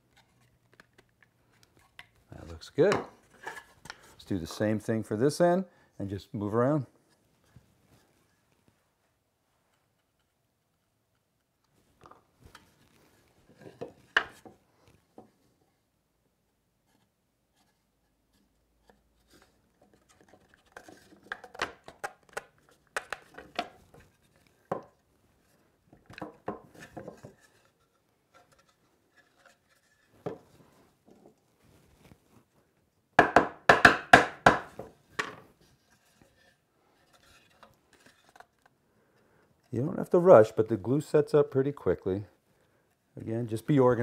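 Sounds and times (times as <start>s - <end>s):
wooden knocks and scrapes: 13.4s - 14.6s, 23.1s - 31.4s.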